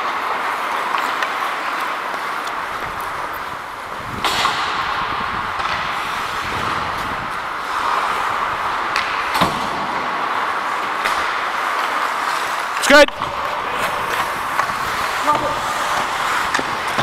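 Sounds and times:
hockey sticks and puck clacking: 0.0 - 17.0
skate blades scraping ice: 0.0 - 17.0.

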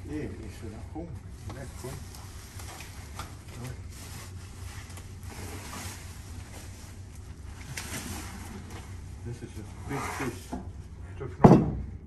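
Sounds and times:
low steady hum: 0.0 - 12.0
plastic wrap and cardboard rustling: 1.3 - 10.5.

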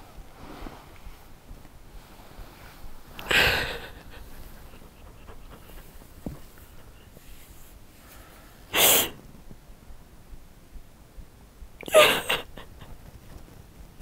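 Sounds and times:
person sniffing while crying: 3.2 - 6.1, 8.7 - 9.2.

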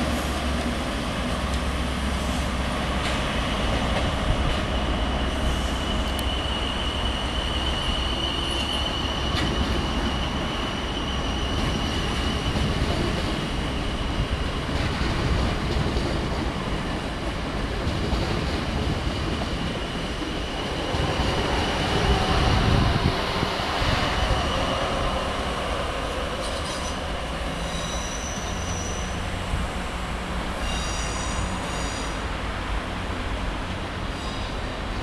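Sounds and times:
diesel train engine rumble: 0.0 - 35.0
rail noise: 0.0 - 35.0
high squeal: 4.6 - 12.8, 26.3 - 29.4, 30.6 - 32.2.

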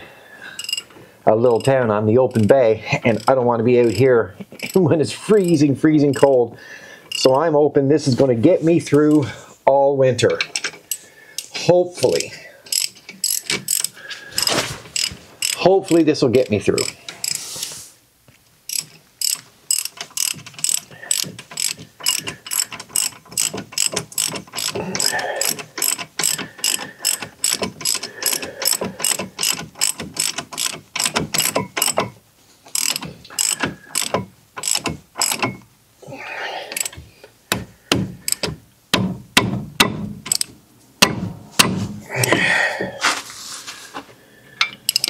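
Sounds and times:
ratchet clicking: 0.6 - 0.9, 4.6 - 4.8, 5.4 - 6.4, 10.4 - 17.4, 18.7 - 35.7, 36.7 - 37.0, 38.2 - 38.6, 40.2 - 40.5, 44.6 - 45.0.

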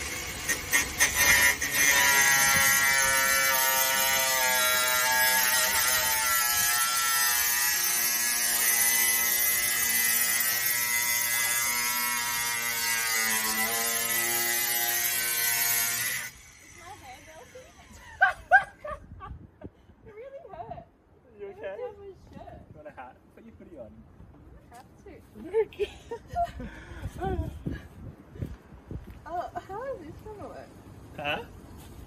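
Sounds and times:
angle grinder cutting sheet metal: 0.0 - 17.9.

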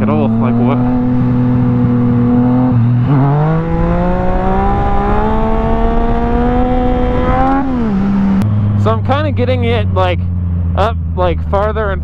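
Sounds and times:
motorcycle engine under throttle: 0.0 - 11.7
wind rush on microphone: 3.6 - 8.8.

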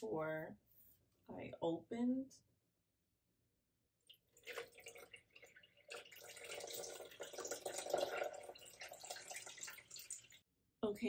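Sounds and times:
milk pouring into blender jar: 4.1 - 10.4.

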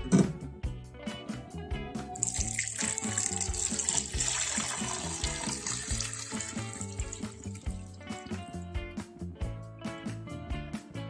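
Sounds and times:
background music with steady beat: 0.0 - 11.0
water pouring into a pot: 2.2 - 8.6.

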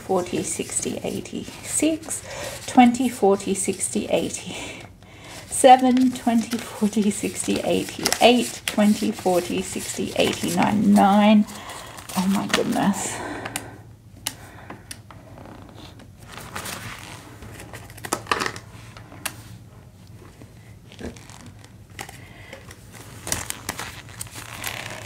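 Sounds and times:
banknotes crinkling and flicking: 0.0 - 13.6, 21.3 - 25.0.

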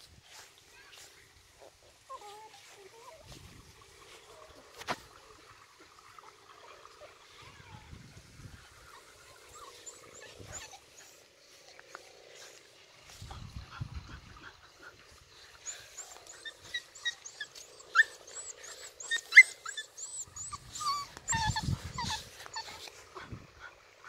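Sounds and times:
dogs whimpering and yelping: 8.8 - 11.3, 13.7 - 23.8.

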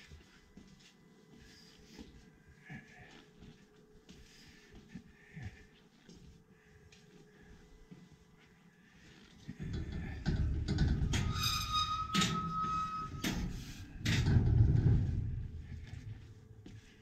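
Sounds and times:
high squeak: 11.0 - 14.0
low rumble: 12.2 - 16.5.

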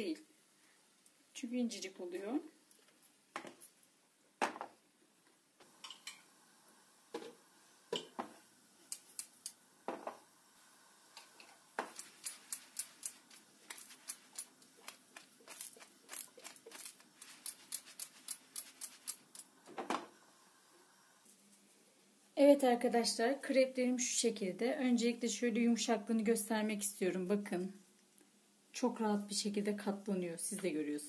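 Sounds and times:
crepe crackling in a frying pan: 11.0 - 19.7.

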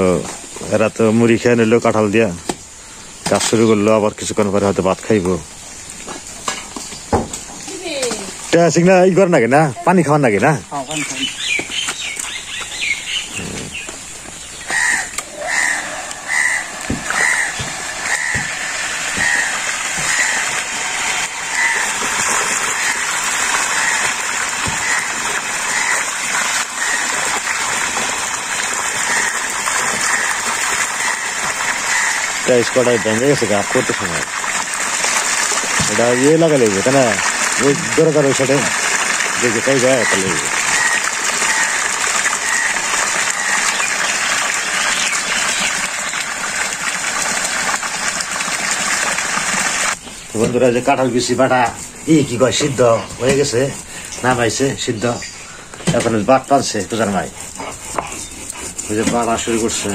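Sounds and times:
hose water pouring into basin: 14.7 - 55.2, 55.8 - 57.5, 58.2 - 59.9.

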